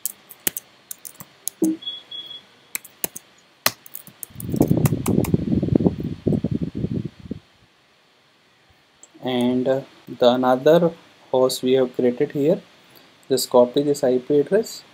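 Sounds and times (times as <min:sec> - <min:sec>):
typing on computer keyboard: 0:00.0 - 0:01.8, 0:02.8 - 0:05.2.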